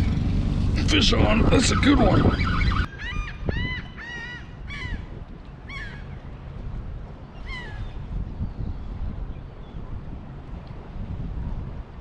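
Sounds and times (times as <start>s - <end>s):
gulls calling: 0.0s - 6.4s, 7.2s - 8.7s
wind rumble on microphone: 0.0s - 12.0s.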